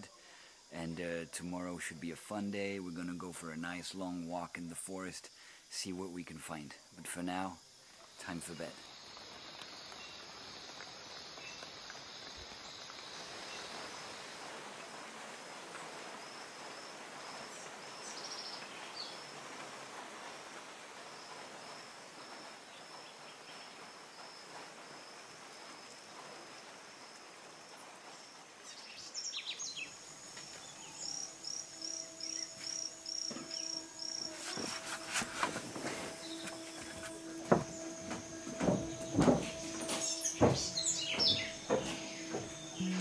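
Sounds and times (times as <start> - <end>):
high insect drone: 0.0 - 43.0
soft hiss of forest noise: 0.0 - 43.0
bird chirping: 28.6 - 34.6, 36.1 - 43.0
low steady hum: 30.7 - 43.0.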